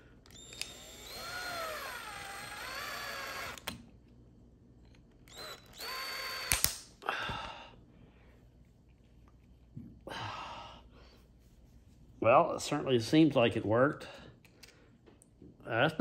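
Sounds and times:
cordless drill spinning: 0.2s - 3.8s, 5.3s - 6.6s
sharp clicks: 5.3s - 6.8s.

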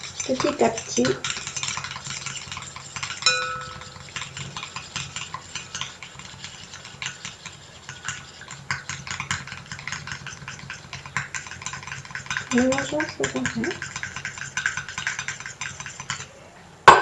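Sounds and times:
metal spoon stirring in bowl: 0.0s - 16.3s
metallic ring: 3.2s - 4.1s.

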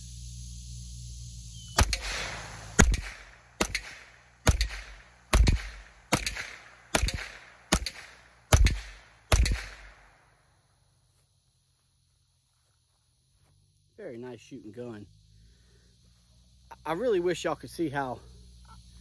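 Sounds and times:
rifle shots: 1.8s - 10.1s.

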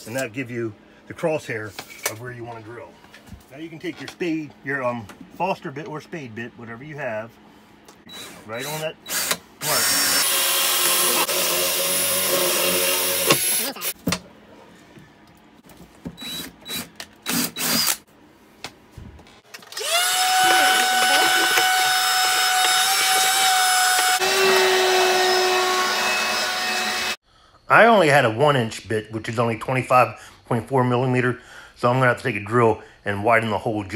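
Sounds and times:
cordless drill boring through wood: 8.1s - 14.0s, 16.2s - 18.0s, 19.7s - 27.2s.

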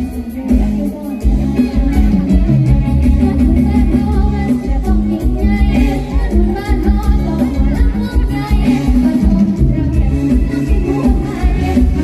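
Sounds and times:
live band music: 0.0s - 12.0s
woman singing into a microphone: 0.0s - 12.0s.

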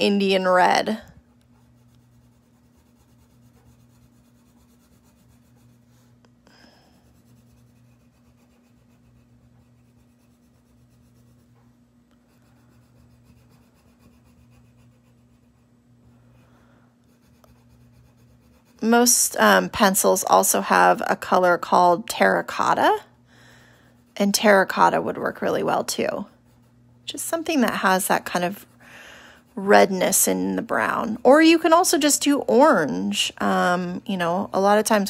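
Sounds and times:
pencil scratching on paper: 0.0s - 6.2s, 6.8s - 16.4s, 17.0s - 19.2s, 23.8s - 26.8s
steady low hum: 0.0s - 35.0s.

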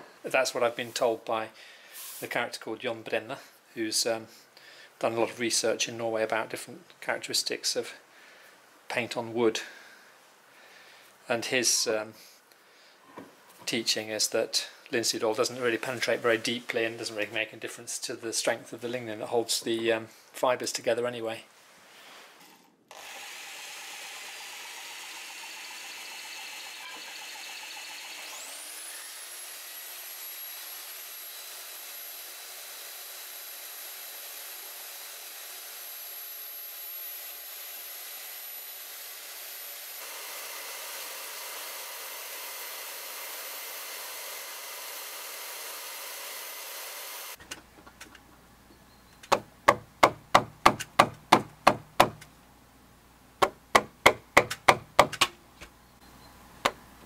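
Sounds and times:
lathe spinning: 22.9s - 36.2s, 40.0s - 47.4s
belt sander whining: 22.9s - 48.2s
wooden mallet knocking a peg: 49.2s - 52.3s, 53.4s - 55.3s.

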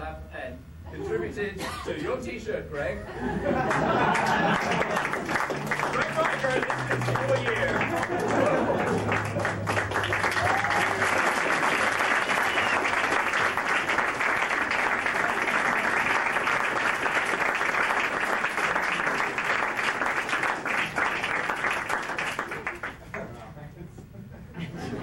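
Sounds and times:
audience applauding: 3.5s - 23.2s.

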